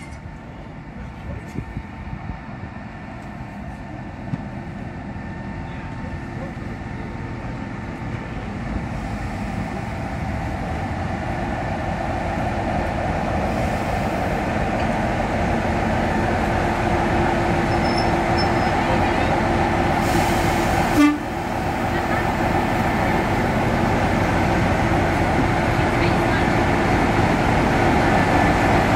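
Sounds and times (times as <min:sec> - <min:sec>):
diesel locomotive engine drone: 0:00.0 - 0:28.9.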